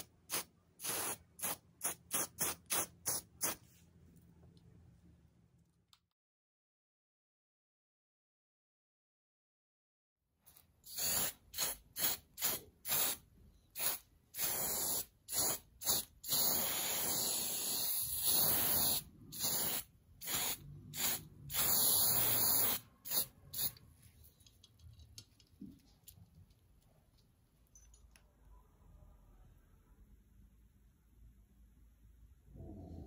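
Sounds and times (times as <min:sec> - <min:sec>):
aerosol spray can hissing: 0:00.0 - 0:03.6, 0:10.8 - 0:13.2, 0:13.8 - 0:23.8.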